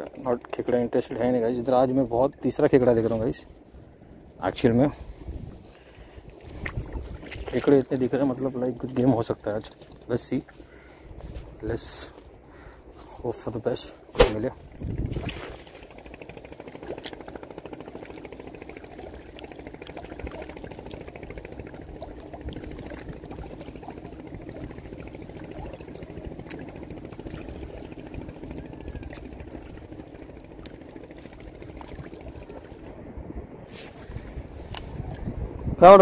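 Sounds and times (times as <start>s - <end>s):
water lapping on rocks: 6.3s - 11.5s, 16.8s - 28.2s.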